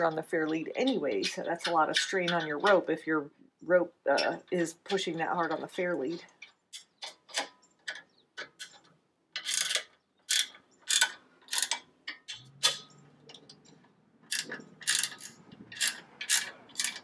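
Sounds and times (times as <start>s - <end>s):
ratcheting wrench clicking: 6.4s - 17.0s.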